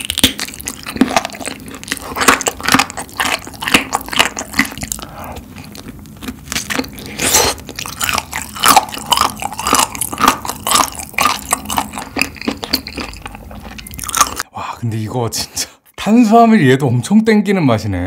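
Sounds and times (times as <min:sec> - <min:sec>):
crunching bites and chewing: 0:00.0 - 0:14.4.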